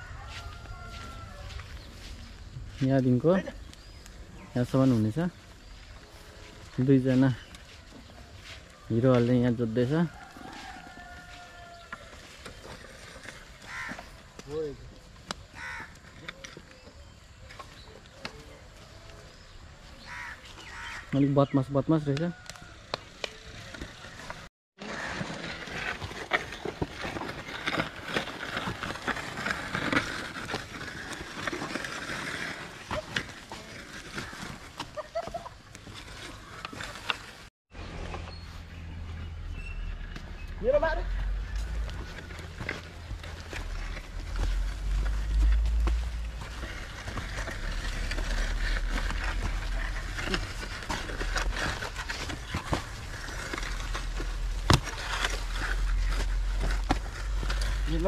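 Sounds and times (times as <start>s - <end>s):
hoof steps: 0.0s - 21.0s
wooden plough scraping dry soil: 0.0s - 58.0s.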